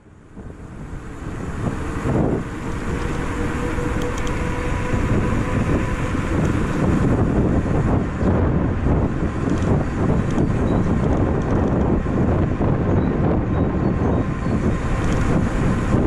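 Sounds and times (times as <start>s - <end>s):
bicycle tyre and road noise: 0.0s - 16.0s
wind buffeting microphone: 0.0s - 16.0s.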